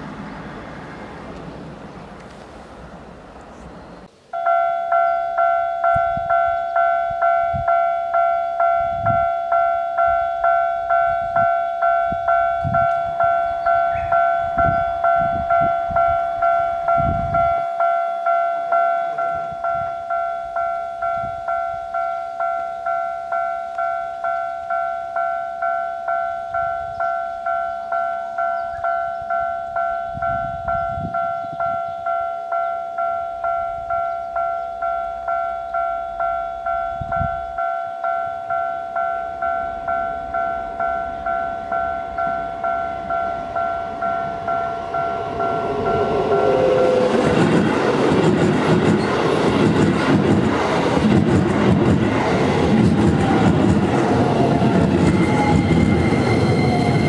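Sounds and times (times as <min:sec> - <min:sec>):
level crossing bell ringing: 0:04.4 - 0:47.2.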